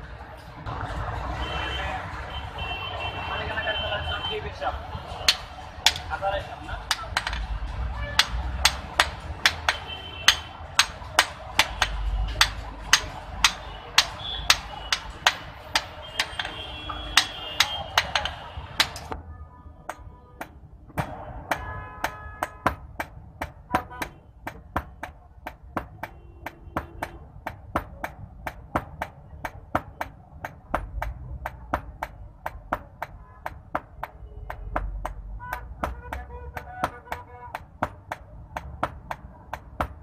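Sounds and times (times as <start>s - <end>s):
hammer striking hot iron on anvil: 5.2s - 6.2s, 6.8s - 7.6s, 8.2s - 19.2s.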